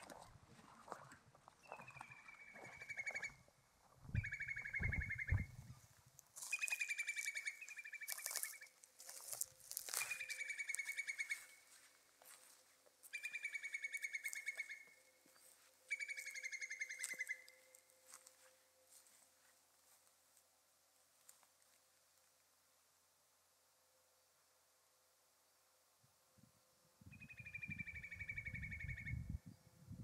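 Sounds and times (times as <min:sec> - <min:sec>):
songbird trilling: 0:04.2 - 0:05.5, 0:06.5 - 0:08.7, 0:09.9 - 0:11.6, 0:13.1 - 0:17.8, 0:27.1 - 0:29.4.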